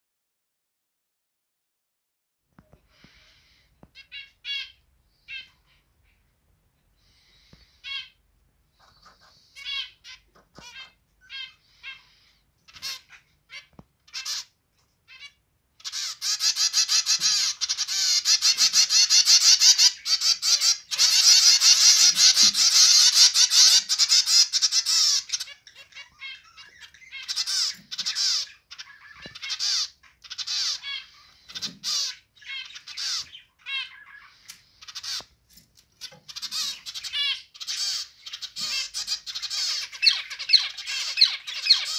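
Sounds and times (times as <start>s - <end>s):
finches calling and singing: 15.1s - 35.3s, 36.0s - 41.9s.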